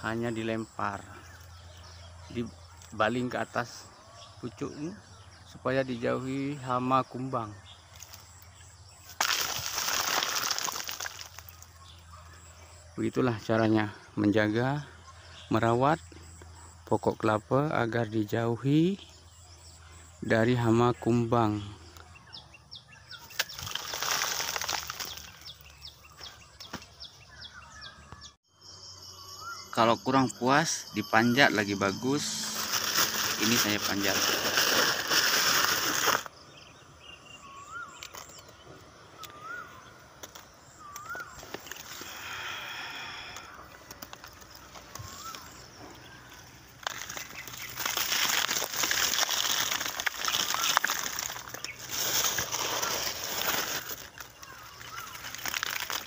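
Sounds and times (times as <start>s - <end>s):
bird chirp: 0.0s - 56.0s
palm fronds rustling: 7.8s - 12.0s, 23.2s - 27.0s, 29.4s - 36.3s, 39.2s - 56.0s.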